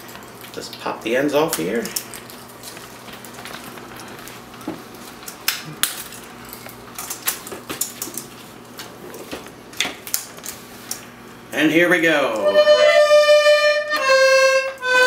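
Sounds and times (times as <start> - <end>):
accordion handling clicks and knocks: 13.9 - 15.0.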